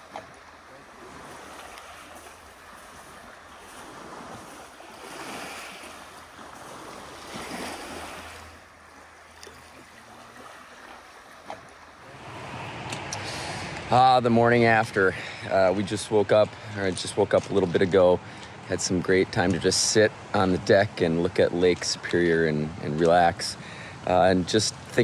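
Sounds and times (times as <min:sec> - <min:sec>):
waves washing ashore: 0:00.0 - 0:25.0.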